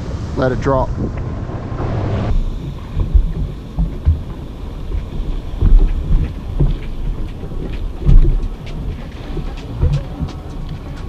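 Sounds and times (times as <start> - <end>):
wind buffeting microphone: 0.0 - 11.0
water slapping jet ski: 2.3 - 11.0.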